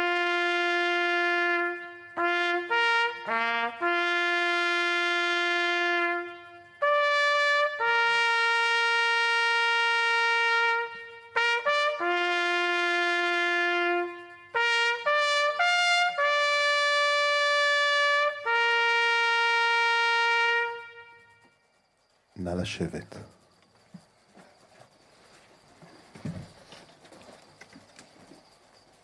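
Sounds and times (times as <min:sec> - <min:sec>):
trumpet call: 0:00.0 - 0:21.8.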